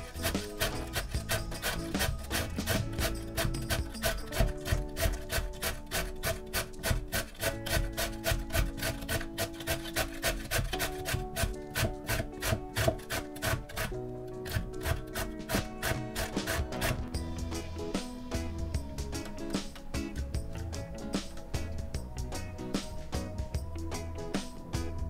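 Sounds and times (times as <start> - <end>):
carrot grated on metal grater: 0.0 - 17.1
background music with held notes: 0.0 - 25.0.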